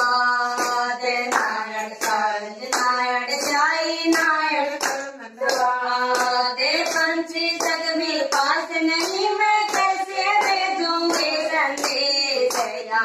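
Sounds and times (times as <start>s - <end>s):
hand claps: 0.0s - 13.0s
women singing together: 0.0s - 13.0s.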